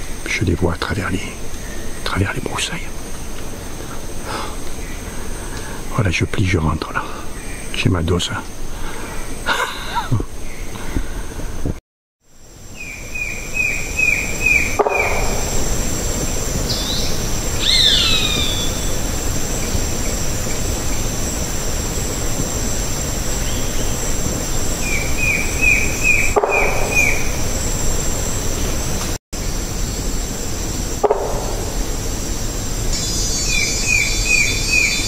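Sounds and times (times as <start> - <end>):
high insect drone: 0.0 - 35.0
falling whistles: 16.7 - 19.0.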